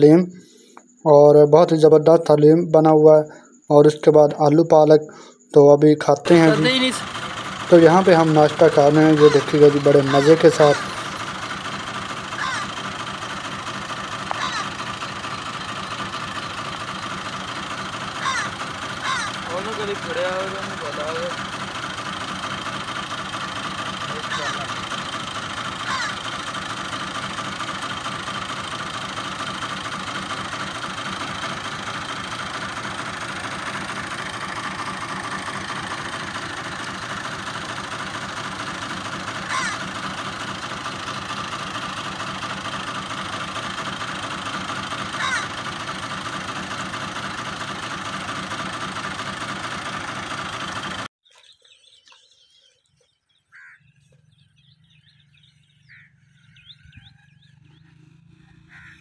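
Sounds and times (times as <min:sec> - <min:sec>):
engine running: 0:06.0 - 0:51.1, 0:53.9 - 0:59.0.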